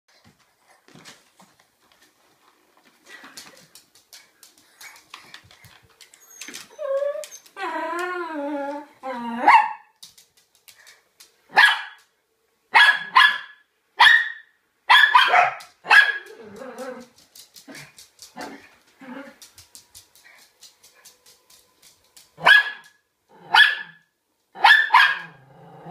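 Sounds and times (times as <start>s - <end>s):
small dog whining: 6.2s - 9.6s
dog barking sharply: 11.5s - 12.0s, 12.8s - 16.2s, 22.4s - 22.9s, 24.6s - 25.3s.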